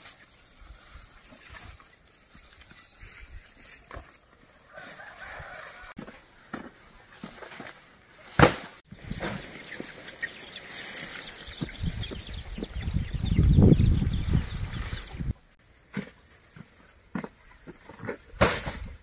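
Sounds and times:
footsteps in dry leaves: 0.0s - 8.3s, 9.4s - 12.0s
rustling in dry leaves: 0.0s - 12.5s.

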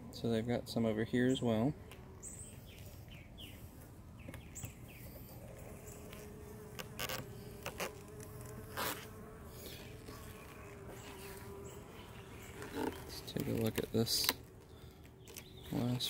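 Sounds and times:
bees buzzing: 1.1s - 16.0s.

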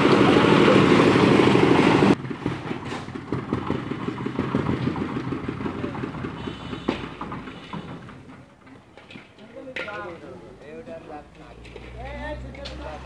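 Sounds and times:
small engine running: 2.0s - 7.9s.

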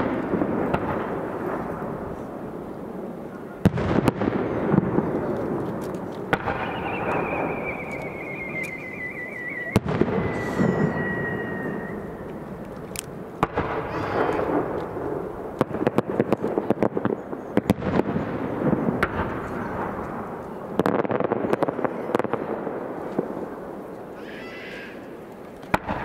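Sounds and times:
crackling bangs: 0.0s - 24.2s, 25.2s - 26.0s
firework shells bursting: 3.7s - 18.0s
falling firework whistle: 6.3s - 12.8s.

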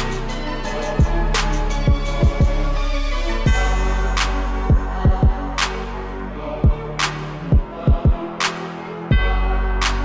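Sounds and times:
electronic music: 0.0s - 10.0s
deep falling drum beats: 4.7s - 5.5s, 7.5s - 8.3s.

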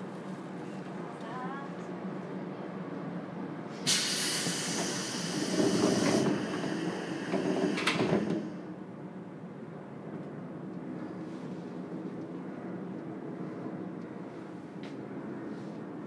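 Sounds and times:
compressed air hiss: 3.8s - 8.5s
train doors sliding: 3.8s - 8.7s.

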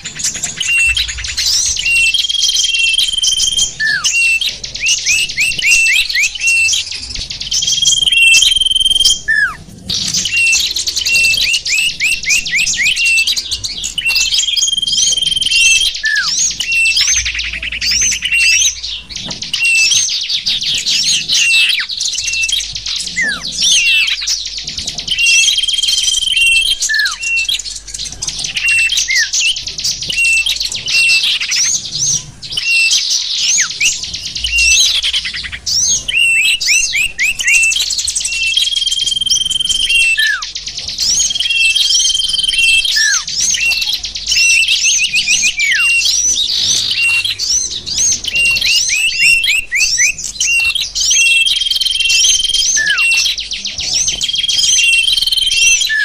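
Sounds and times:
songbirds twittering: 0.0s - 56.0s
whistled lure notes: 7.6s - 9.6s.

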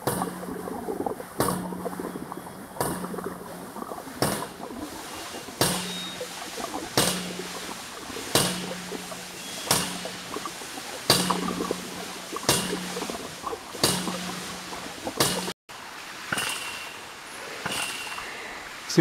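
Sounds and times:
running water: 0.0s - 19.0s
ram pump valve clacking: 5.4s - 15.5s.

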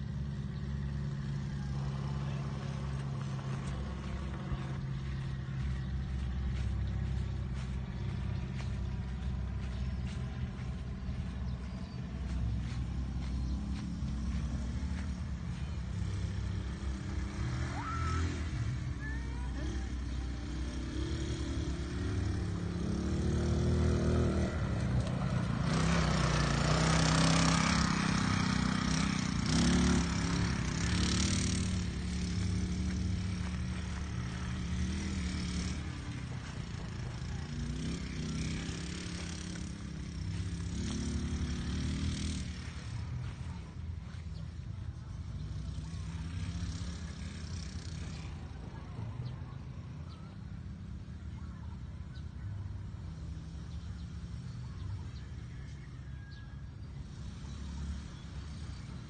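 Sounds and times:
tyres churning dirt: 0.0s - 51.1s
dune buggy engine running: 0.0s - 59.0s.

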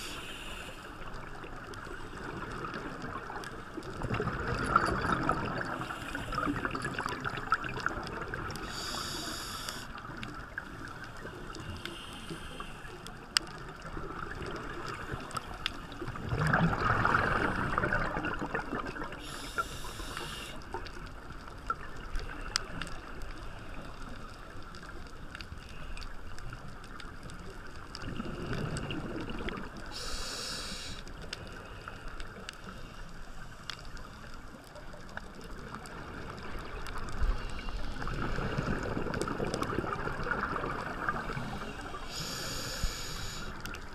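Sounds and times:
regulator inhale hiss: 0.0s - 1.1s, 5.7s - 6.8s, 8.6s - 10.2s, 11.5s - 13.1s, 19.1s - 20.7s, 29.9s - 33.7s, 41.2s - 43.8s
muffled underwater wash: 0.0s - 43.9s
exhaled bubbles rushing: 2.1s - 8.6s, 16.0s - 19.2s, 38.0s - 42.0s.

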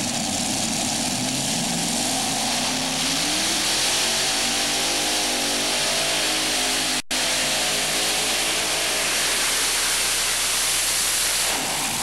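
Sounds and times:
racing engines running hard: 0.0s - 10.7s.

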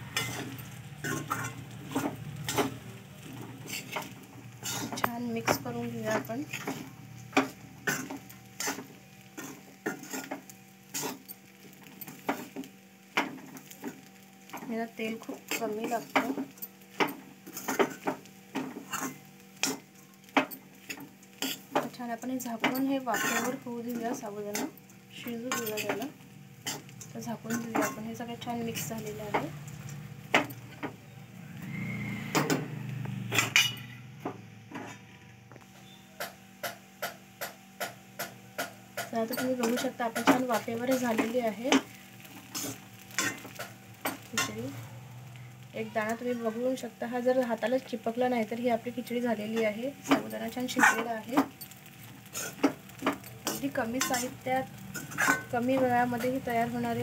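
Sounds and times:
faint sizzling in a pan: 0.0s - 57.0s
spatula scraping a pan: 0.1s - 2.9s, 3.5s - 5.1s, 6.1s - 12.6s, 15.2s - 22.0s, 22.6s - 24.8s, 25.4s - 28.0s, 39.0s - 44.6s, 50.8s - 56.4s
metal spatula scraping steel pan: 0.2s - 2.7s, 3.7s - 5.0s, 23.1s - 23.6s, 53.4s - 55.5s.

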